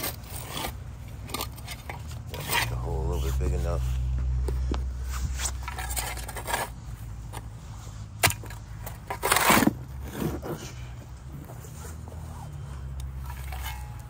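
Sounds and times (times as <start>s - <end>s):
shovel scraping soil: 0.0s - 4.0s, 5.0s - 14.0s
shovel clink: 13.2s - 14.0s.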